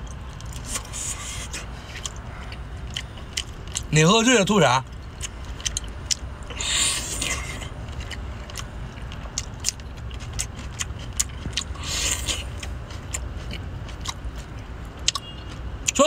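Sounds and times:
wet chewing and sucking clicks: 0:00.0 - 0:03.9, 0:04.8 - 0:16.0
steady low rumble: 0:00.0 - 0:15.9
slurping: 0:00.4 - 0:02.6, 0:06.5 - 0:08.2, 0:10.3 - 0:14.2.

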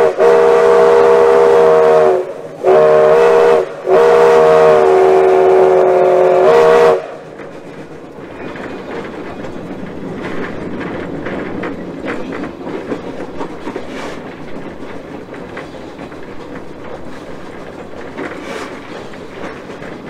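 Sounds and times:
steam locomotive rumbling: 0:00.0 - 0:20.0
wheels clicking over rail joints: 0:06.4 - 0:20.0.

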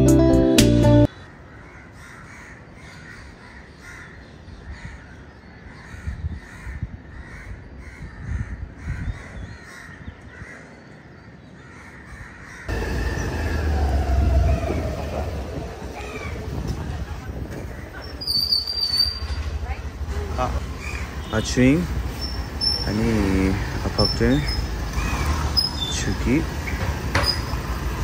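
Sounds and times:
crows cawing: 0:01.1 - 0:16.5, 0:20.4 - 0:21.3, 0:22.2 - 0:24.1, 0:24.9 - 0:25.5
scooter rumble: 0:12.7 - 0:28.0.

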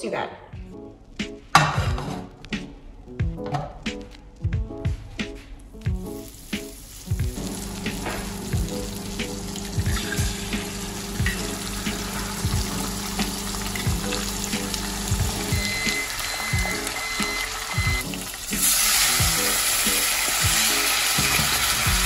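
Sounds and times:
background music: 0:00.0 - 0:22.0
food sizzling in a frying pan: 0:05.9 - 0:22.0.

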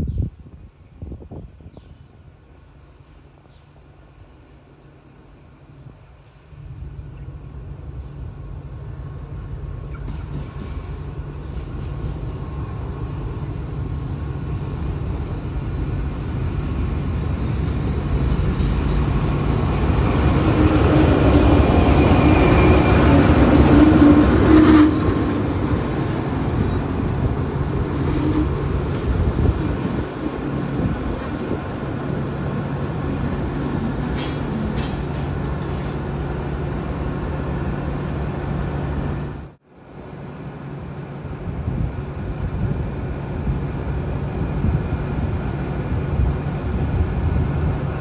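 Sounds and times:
train wheels on rails: 0:08.6 - 0:39.4.

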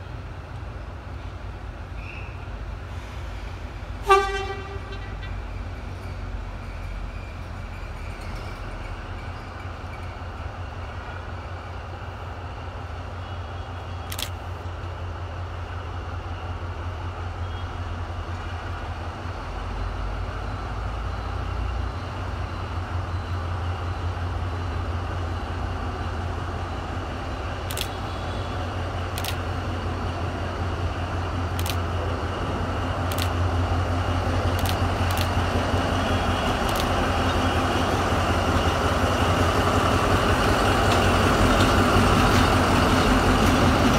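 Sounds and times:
diesel locomotive engine humming: 0:00.0 - 0:43.9
sharp clicks: 0:14.1 - 0:14.4, 0:27.6 - 0:28.0, 0:29.1 - 0:29.5, 0:31.5 - 0:31.9, 0:33.0 - 0:33.4, 0:34.5 - 0:35.4, 0:36.6 - 0:37.0.

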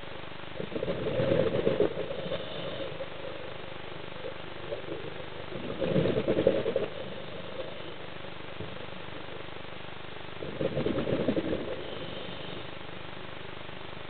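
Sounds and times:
crackling rushing bursts: 0:00.0 - 0:14.0
muffled underwater hiss: 0:00.0 - 0:14.0.

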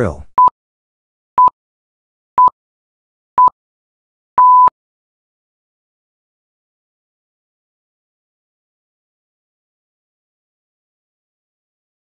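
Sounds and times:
long electronic beep: 0:04.4 - 0:04.7
short electronic beeps: 0:04.4 - 0:04.7.

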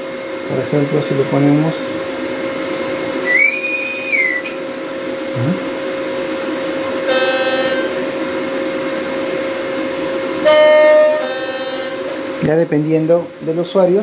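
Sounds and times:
steady hum: 0:00.0 - 0:14.0
harsh buzzing tone: 0:05.3 - 0:05.7, 0:07.0 - 0:08.2, 0:10.4 - 0:12.4.

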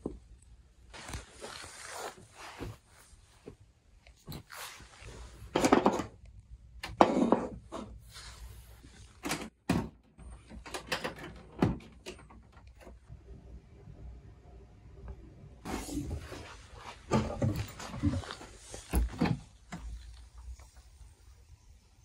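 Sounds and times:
knocks clunks and scrapes: 0:16.0 - 0:20.0.

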